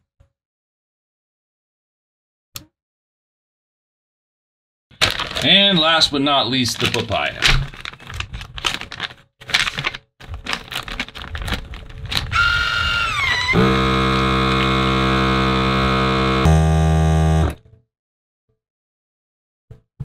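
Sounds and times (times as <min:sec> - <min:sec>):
plastic bag rustling and clicking: 0:05.0 - 0:12.4
vacuum sealer pump humming: 0:12.3 - 0:17.6.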